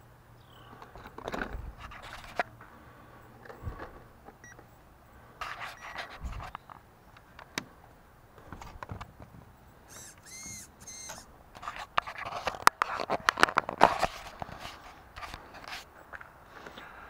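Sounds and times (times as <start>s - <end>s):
brief high whirs: 9.9s - 11.3s
sharp clicks: 9.9s - 11.3s
fingers handling camera: 9.9s - 14.6s.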